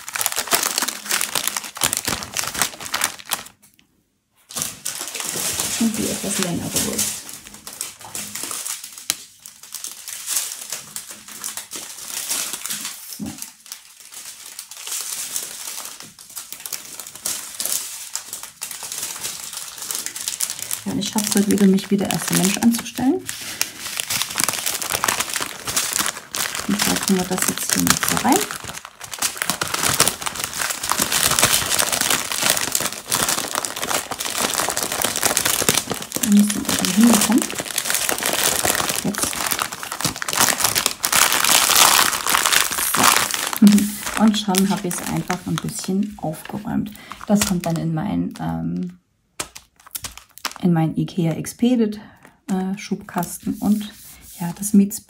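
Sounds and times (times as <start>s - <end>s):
plastic bags crinkling: 0.0s - 3.8s, 4.4s - 51.2s.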